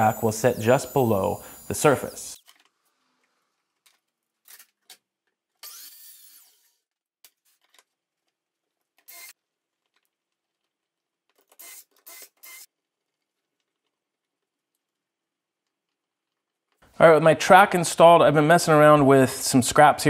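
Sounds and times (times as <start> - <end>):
cordless drill bursts: 0.0 - 2.4, 9.1 - 9.4, 11.5 - 12.7.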